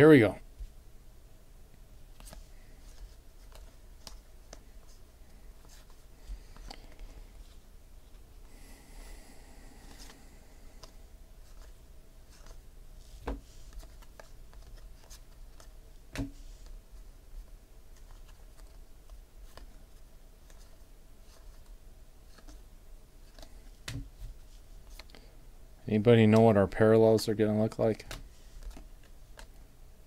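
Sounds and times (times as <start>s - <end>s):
cards sliding and rustling: 2.1s - 8.3s, 9.8s - 16.8s, 17.4s - 22.6s, 23.2s - 25.1s, 27.7s - 29.6s.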